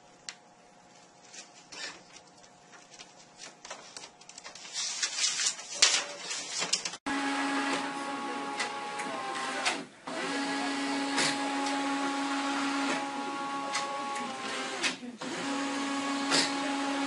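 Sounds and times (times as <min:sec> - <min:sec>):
printer whirring: 0:05.9 - 0:17.0.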